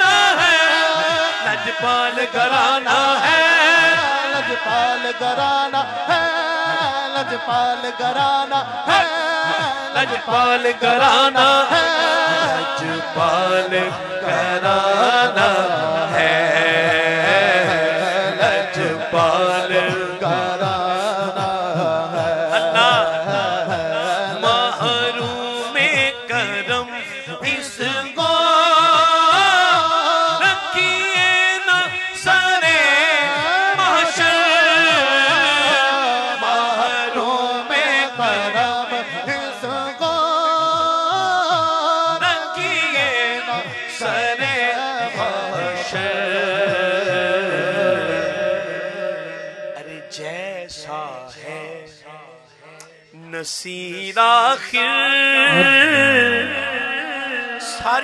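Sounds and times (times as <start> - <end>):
man singing into a microphone: 0.0 - 58.0.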